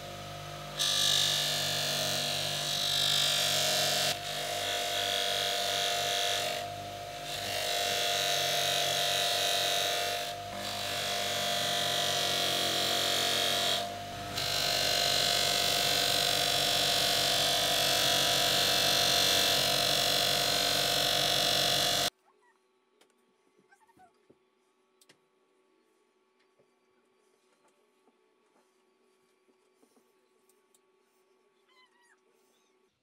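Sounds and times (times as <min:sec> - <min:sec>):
bench grinder motor hum: 0:00.0 - 0:22.1.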